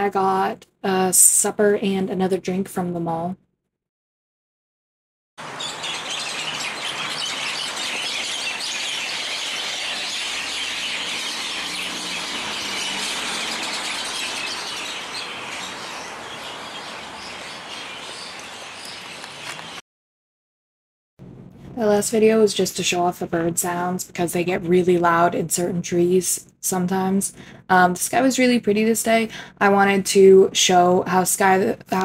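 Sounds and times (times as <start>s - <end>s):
many birds chirping: 5.4s - 19.8s.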